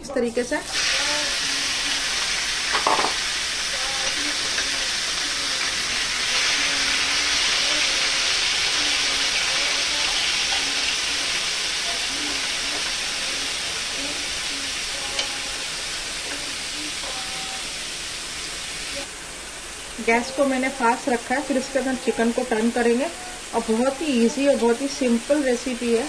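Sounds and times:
chicken sizzling in a pan: 0.2 - 26.0
spatula turning food: 0.7 - 17.8.

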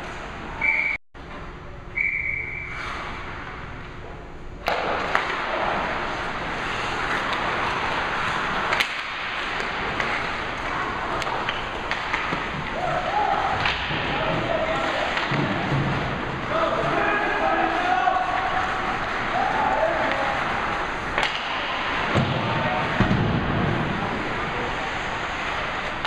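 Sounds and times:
referee whistle blasts: 0.6 - 1.0, 2.0 - 2.8
sticks and puck clacking: 4.6 - 26.0
skates scraping on ice: 5.0 - 12.8.

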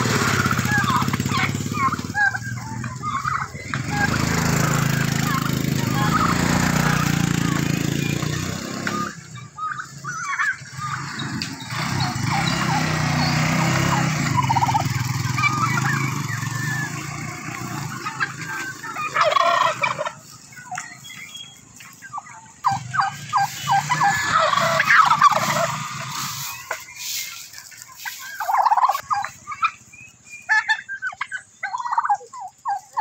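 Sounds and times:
turkeys calling: 0.0 - 33.0.

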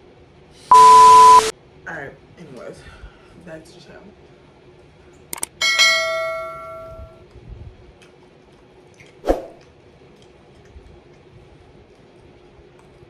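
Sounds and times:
bell-like ding: 5.6 - 7.2.

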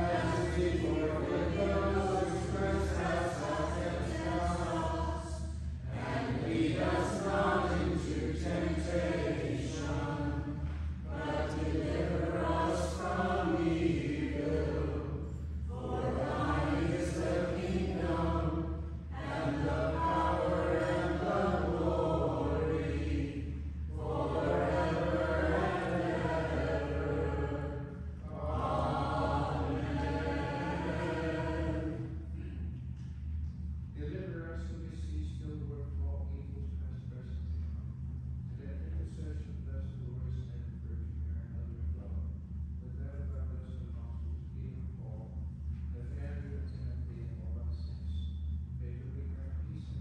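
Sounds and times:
choir singing: 0.0 - 15.1, 15.7 - 32.3.

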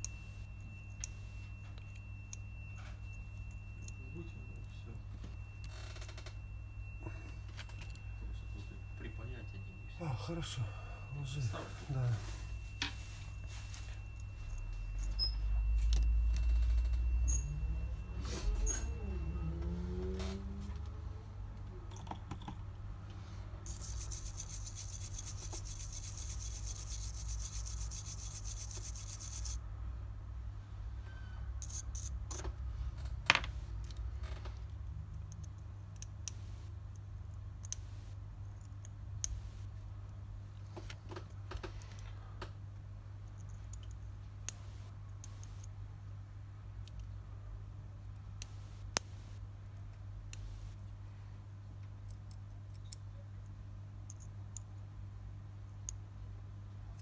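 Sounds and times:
low electrical hum: 0.0 - 57.0
small tools clicking and scraping: 23.6 - 29.6, 31.6 - 32.6.

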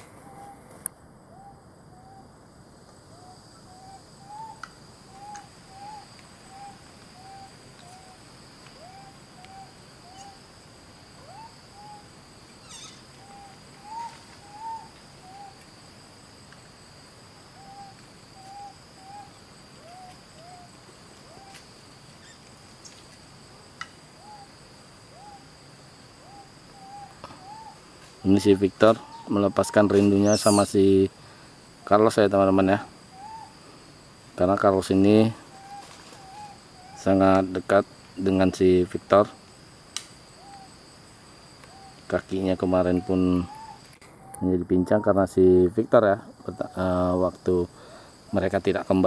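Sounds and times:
animal hoot-like calls: 0.0 - 0.7, 3.1 - 8.2, 11.2 - 15.6, 17.6 - 21.6, 24.2 - 25.5, 26.2 - 27.8, 28.9 - 30.8, 33.1 - 33.7, 35.4 - 37.1, 42.8 - 45.2
high insect drone: 0.0 - 49.0.

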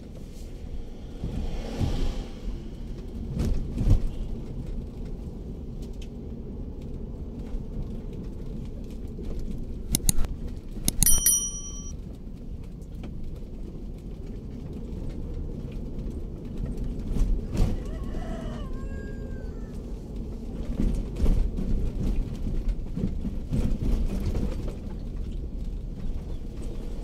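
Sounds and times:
car engine and tyres rumbling: 0.0 - 11.0, 12.2 - 17.9, 19.7 - 27.0
mouse clicks: 10.0 - 10.3, 10.9 - 11.9
short bell ding: 10.9 - 11.9.

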